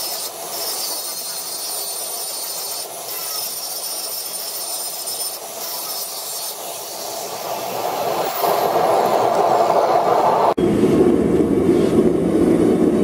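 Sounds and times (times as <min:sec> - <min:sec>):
angle grinder grinding steel: 0:00.0 - 0:09.6
steady rushing noise: 0:00.0 - 0:13.0.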